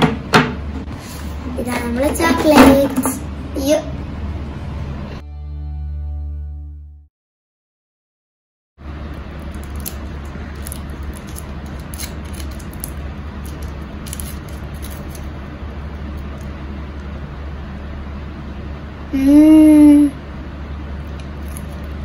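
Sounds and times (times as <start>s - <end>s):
steady low hum: 0.0s - 6.5s, 8.8s - 22.0s
foil wrapper crinkling: 9.1s - 16.6s, 21.1s - 22.0s.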